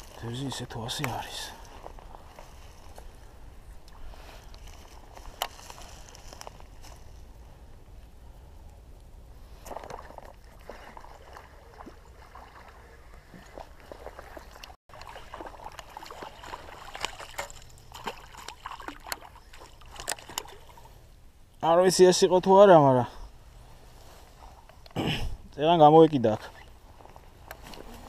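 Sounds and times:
faint water sounds: 0:00.0 - 0:28.0
fishing reel clicks and rustles: 0:03.9 - 0:07.2, 0:14.5 - 0:20.9.

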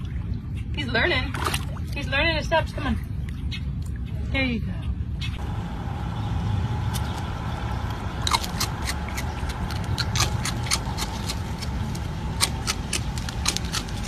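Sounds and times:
low rumble: 0:04.9 - 0:14.0
raccoon crunching cereal: 0:08.2 - 0:14.0.

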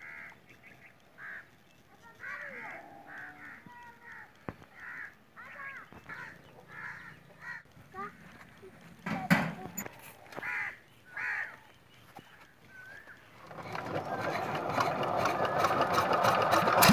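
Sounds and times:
crows cawing: 0:00.0 - 0:08.5, 0:10.2 - 0:11.7
sharp clicks: 0:00.2 - 0:16.9.

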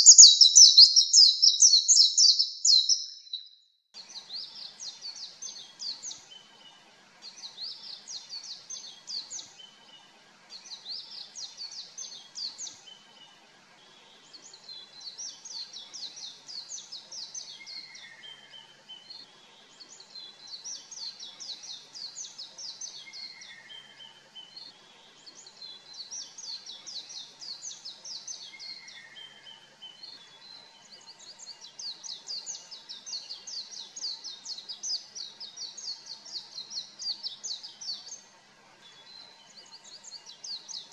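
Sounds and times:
bird twittering: 0:00.0 - 0:03.5.

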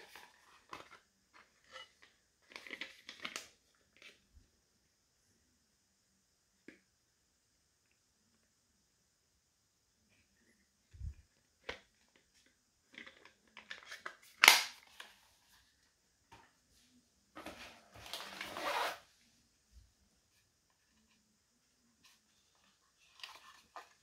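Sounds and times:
packaging rustling and scraping: 0:17.4 - 0:19.1, 0:22.6 - 0:24.0.

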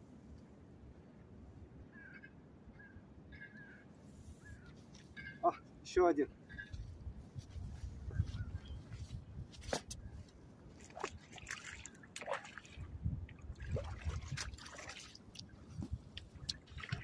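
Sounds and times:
small water splashes: 0:10.7 - 0:17.0
fish thrashing in water: 0:13.5 - 0:15.3.

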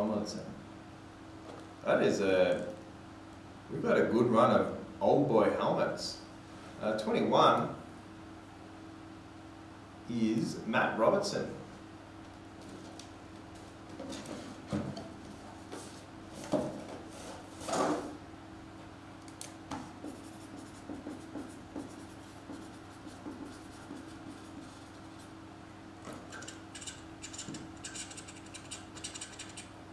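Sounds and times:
low electrical hum: 0:00.0 - 0:29.9
pen scratching: 0:20.1 - 0:24.9.

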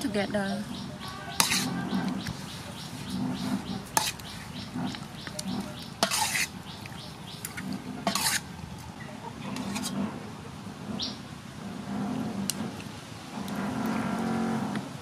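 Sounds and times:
metal spoon scraping in a bowl: 0:01.3 - 0:06.6, 0:07.5 - 0:08.5, 0:09.5 - 0:10.0.

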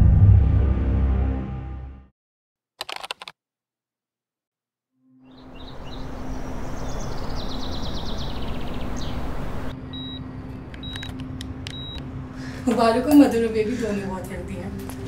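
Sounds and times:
low hum: 0:00.0 - 0:02.1
sound effect hit: 0:00.0 - 0:02.1
birds chirping: 0:05.3 - 0:12.0.

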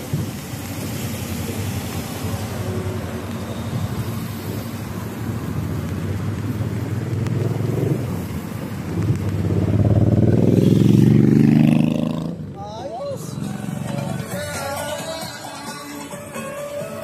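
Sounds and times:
wind buffeting microphone: 0:00.0 - 0:11.3
road traffic: 0:00.0 - 0:17.0
vehicle engine: 0:00.0 - 0:17.0.

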